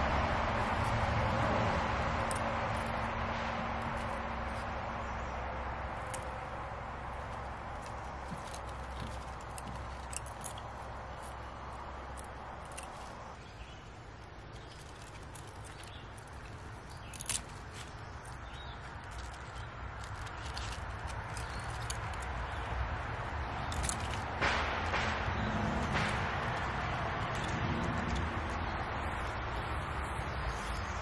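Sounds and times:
soft clicks and rustles: 2.2 - 25.0.

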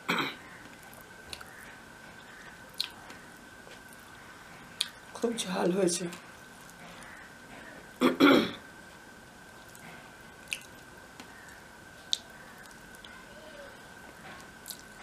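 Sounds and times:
woman clearing her throat: 0.0 - 0.4, 8.0 - 8.6
faint steady whine: 0.0 - 15.0.

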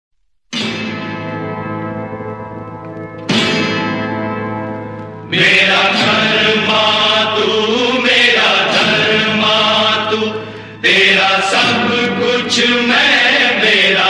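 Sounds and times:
chanted vocals with instruments: 5.3 - 14.0.

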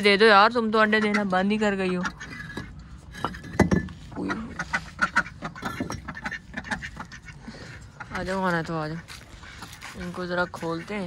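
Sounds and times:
bricks knocking and clinking: 2.3 - 4.0
ducks quacking softly: 4.1 - 11.0.

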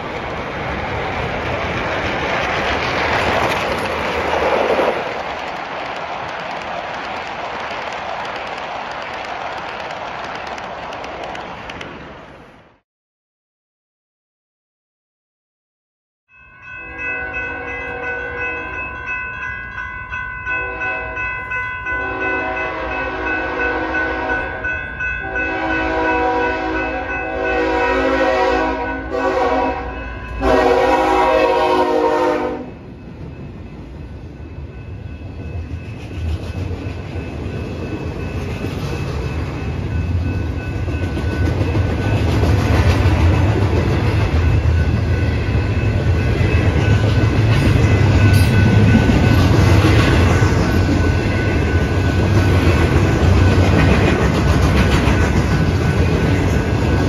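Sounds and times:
crossing bells ringing: 16.3 - 57.0
locomotive air horn: 22.0 - 24.6, 25.2 - 32.8.

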